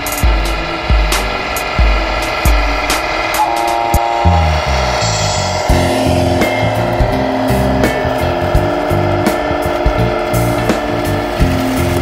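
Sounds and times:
deep kick drum: 0.0 - 3.1, 3.9 - 12.0
cymbal ticks: 0.0 - 12.0
sustained synth tones: 0.0 - 12.0.

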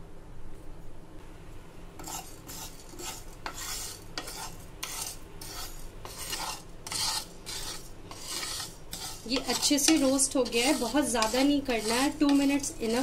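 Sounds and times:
seeds rasping against pan: 2.0 - 13.0
wooden spatula scraping a pan: 2.0 - 13.0.

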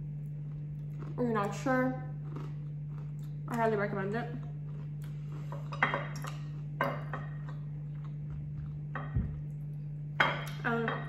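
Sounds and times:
steady low hum: 0.0 - 11.0
soft low thump: 9.0 - 9.4.

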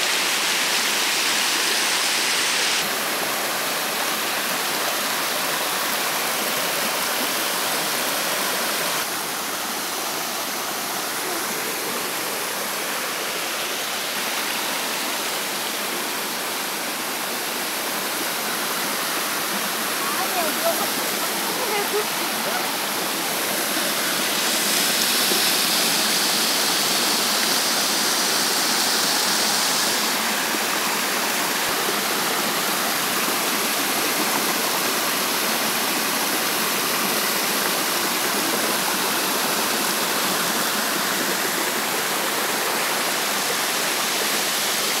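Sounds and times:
waterfall rushing over rocks: 0.0 - 45.0.

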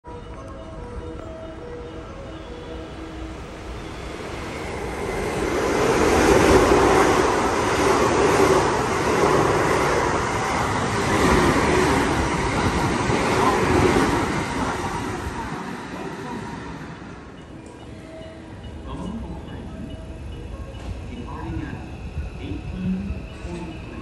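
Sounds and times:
train wheels rushing on rail: 3.3 - 18.3.

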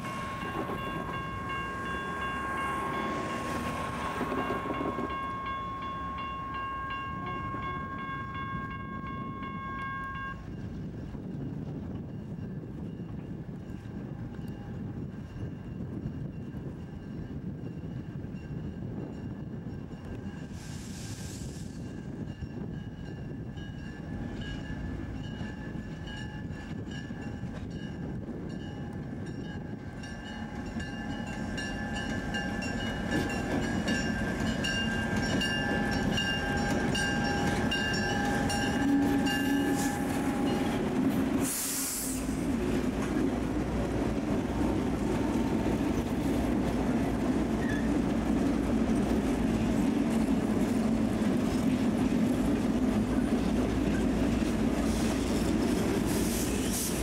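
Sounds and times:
diesel locomotives rumbling: 0.0 - 57.0.

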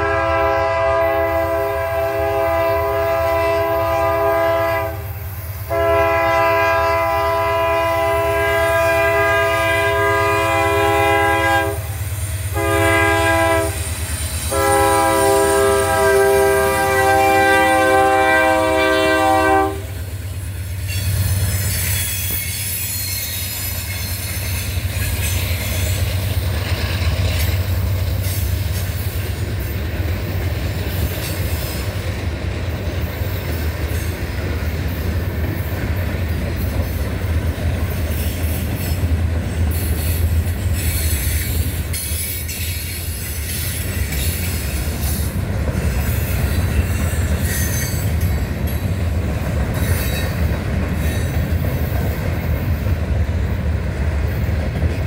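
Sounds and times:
train wheels rumbling on rails: 0.0 - 55.0
wheel squeal and clatter: 20.8 - 29.3, 39.7 - 48.8.

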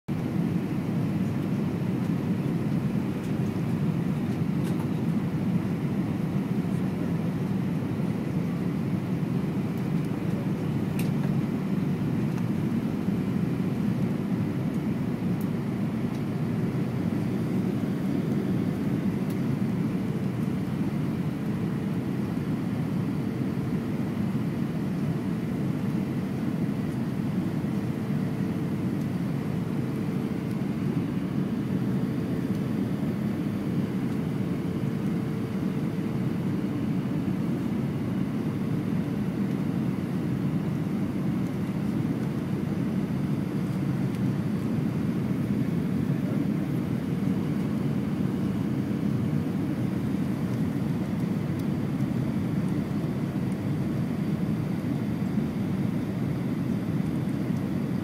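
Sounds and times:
airflow and engine rumble: 0.1 - 58.0
faint steady hum: 0.1 - 58.0.

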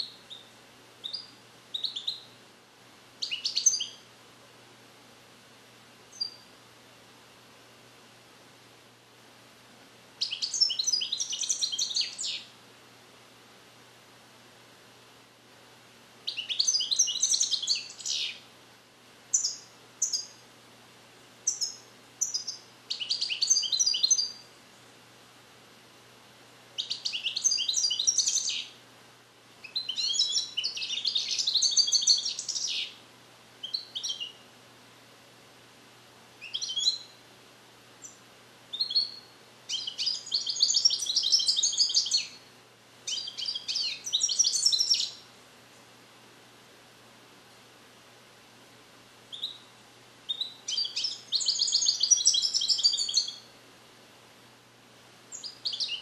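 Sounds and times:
bird chirps: 0.0 - 2.4, 3.2 - 4.0, 6.1 - 6.5, 10.2 - 12.5, 16.3 - 18.4, 19.3 - 20.4, 21.4 - 24.5, 26.8 - 28.8, 29.6 - 33.0, 33.6 - 34.4, 36.4 - 37.2, 38.0 - 42.4, 43.1 - 45.2, 49.3 - 49.7, 50.3 - 53.5, 55.3 - 56.0
goldfinch twittering trills: 38.0 - 42.4, 50.3 - 53.4.

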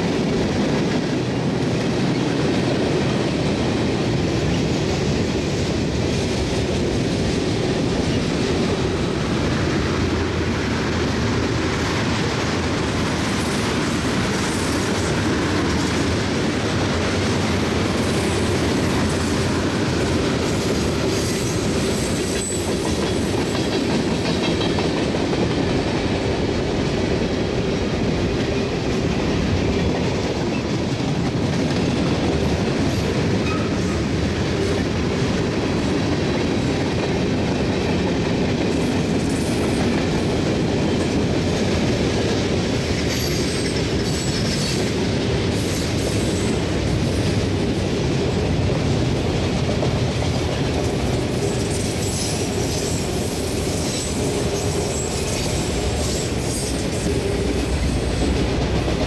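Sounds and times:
steel wheels rolling on rail: 0.0 - 59.0
high wheel squeals: 21.1 - 23.3, 51.4 - 57.3.

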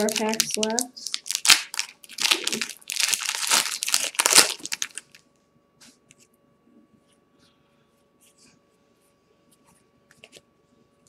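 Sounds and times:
wrapper crinkling as torn open: 0.0 - 5.2.

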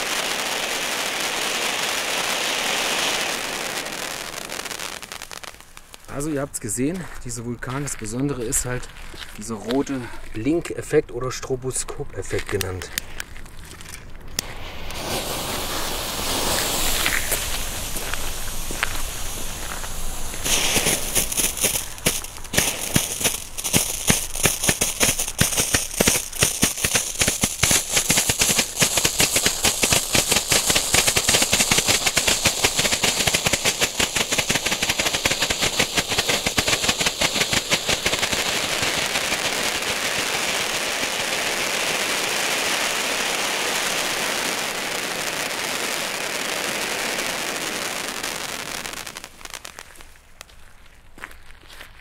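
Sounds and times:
fountain sparks hissing: 0.0 - 6.2, 14.4 - 49.5
rapid fireworks popping: 0.0 - 10.3, 14.2 - 50.7.

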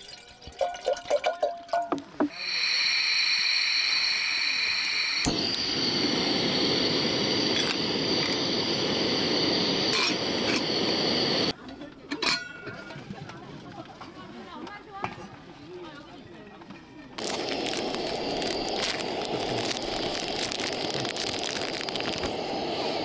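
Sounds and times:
gas stove burner hissing: 2.2 - 11.6, 17.2 - 23.0.

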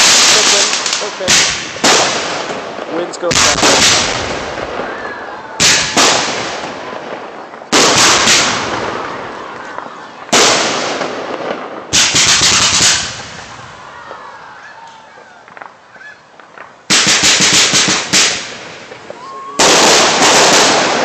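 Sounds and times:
fireworks bangs with echoes: 0.0 - 21.0.

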